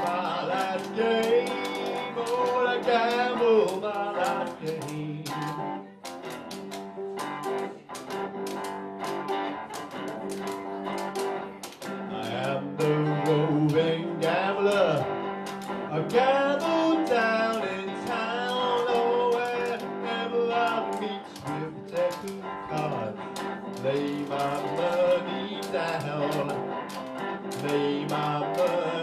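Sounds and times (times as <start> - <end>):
man singing: 0.0 - 5.8, 12.0 - 15.2, 15.9 - 26.7, 27.5 - 29.0
bluesy electric guitar: 0.0 - 29.0.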